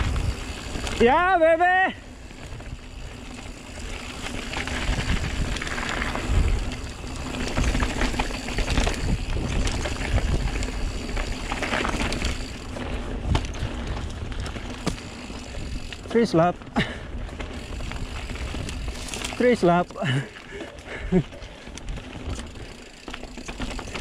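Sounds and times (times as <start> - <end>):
wind rumbling on microphone: 0.0 - 1.2, 2.1 - 19.5
bike rattling over bumps: 0.0 - 24.0
tyres rolling over dirt: 2.2 - 24.0.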